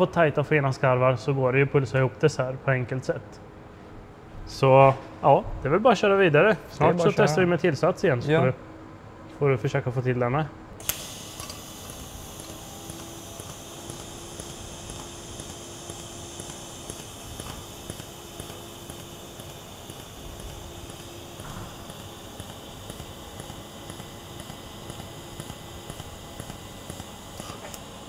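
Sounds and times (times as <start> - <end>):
pulsed welding arc buzz: 10.8 - 28.0.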